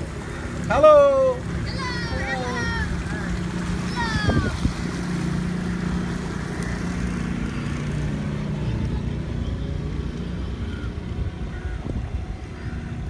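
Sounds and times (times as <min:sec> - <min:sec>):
boat motor humming: 0:00.0 - 0:13.0
water wash: 0:00.0 - 0:13.0
wind noise: 0:03.9 - 0:05.0, 0:11.0 - 0:13.0.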